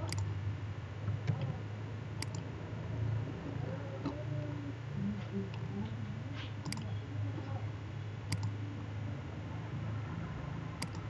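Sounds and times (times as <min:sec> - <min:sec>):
low electrical hum: 0:00.0 - 0:11.0
mouse buttons clicking: 0:02.2 - 0:02.4, 0:06.6 - 0:07.0, 0:08.3 - 0:08.6, 0:10.8 - 0:11.0.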